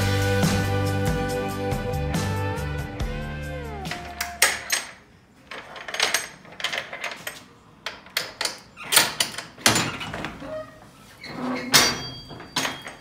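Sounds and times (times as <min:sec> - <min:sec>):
metal door latch clicks and clanks: 0:03.9 - 0:05.0, 0:05.6 - 0:10.5, 0:11.6 - 0:13.0.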